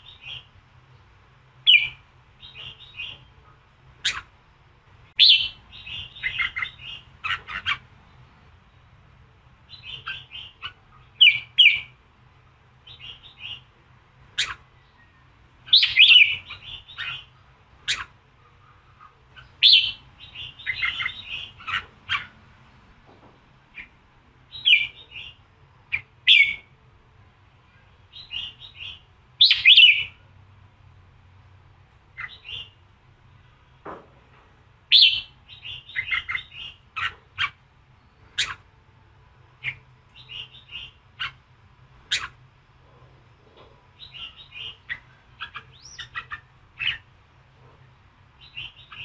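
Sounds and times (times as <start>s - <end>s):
bird singing chirping phrases: 0.0s - 4.4s, 5.0s - 12.0s, 12.7s - 22.5s, 23.7s - 26.8s, 27.6s - 30.3s, 32.0s - 33.9s, 34.9s - 38.7s, 39.6s - 41.4s, 42.0s - 42.4s, 43.9s - 47.1s, 48.3s - 49.0s.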